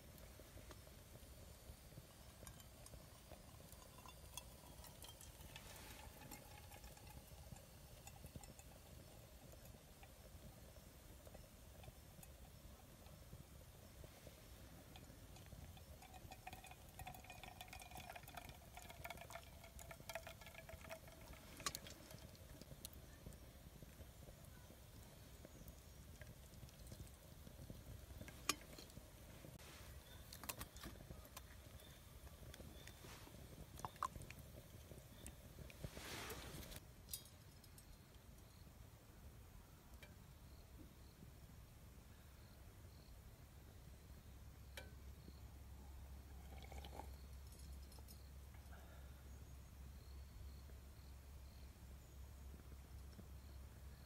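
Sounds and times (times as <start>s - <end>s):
wood fire crackling: 0.0s - 38.5s
water pouring into mug: 3.5s - 8.7s, 16.0s - 22.6s, 46.4s - 47.1s.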